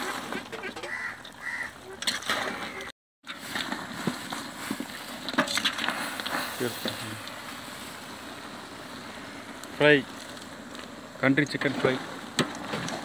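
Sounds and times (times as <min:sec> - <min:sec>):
ladle scraping metal pot: 0:00.0 - 0:07.0
cooking hiss: 0:03.3 - 0:13.0.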